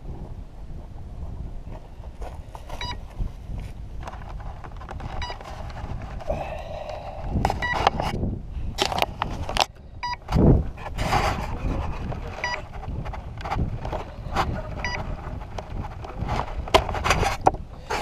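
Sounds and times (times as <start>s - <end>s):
wind rumbling on microphone: 0.0s - 18.0s
short electronic beep: 2.8s - 3.0s, 7.6s - 7.8s, 12.4s - 12.6s
rustles and knocks: 10.3s - 18.0s.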